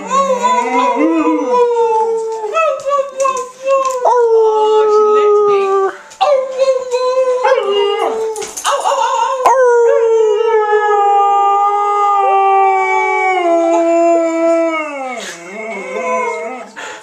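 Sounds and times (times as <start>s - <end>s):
dog howling: 0.0s - 2.9s, 3.8s - 16.8s.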